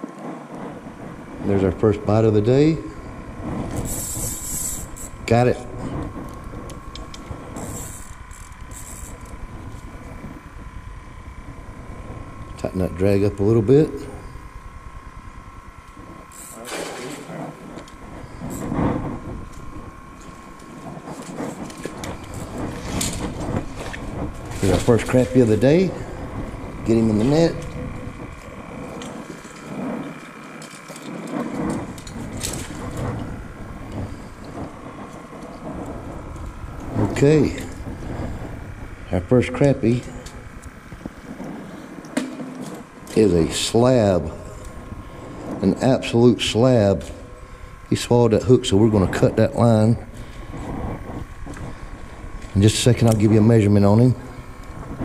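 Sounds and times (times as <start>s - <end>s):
steady low rumble: 0.0s - 55.0s
fishing reel clicking: 3.6s - 5.2s, 6.0s - 9.9s, 16.2s - 33.3s
fishing line hissing zips: 3.6s - 10.6s, 16.2s - 39.2s.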